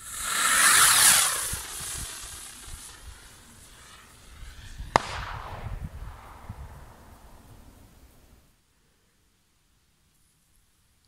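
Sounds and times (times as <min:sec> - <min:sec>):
firework rocket whooshing: 0:00.0 - 0:08.4.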